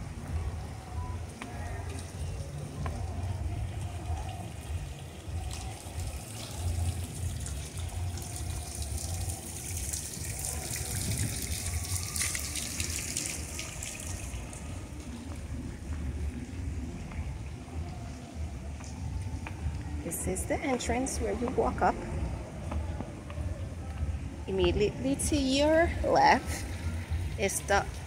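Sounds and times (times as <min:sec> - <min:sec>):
running splashing water: 0:04.4 - 0:15.1
steady low rumble: 0:13.4 - 0:28.0.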